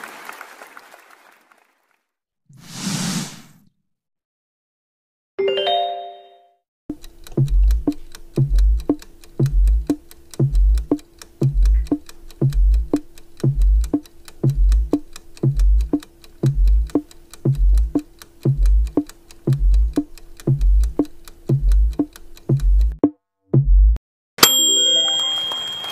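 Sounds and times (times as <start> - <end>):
fast ticking: 6.9 - 23.1
countdown timer music loop: 6.9 - 24.0
deep bass thump: 23.6 - 24.0
short chime: 24.4 - 25.9.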